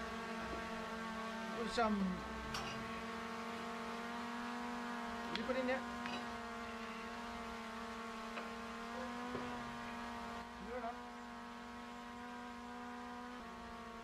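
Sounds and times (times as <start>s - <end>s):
steady hum with overtones: 0.0s - 14.0s.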